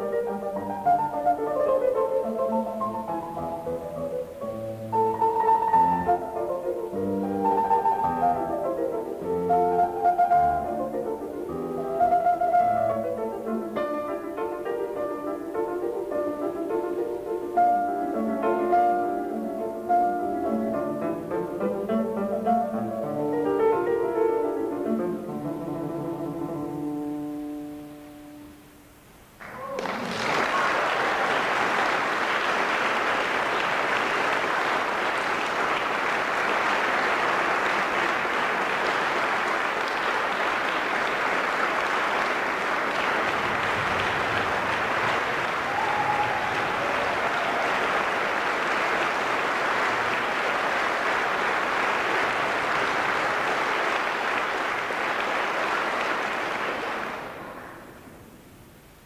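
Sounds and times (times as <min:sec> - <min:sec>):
audience applauding: 0:29.4 - 0:58.0.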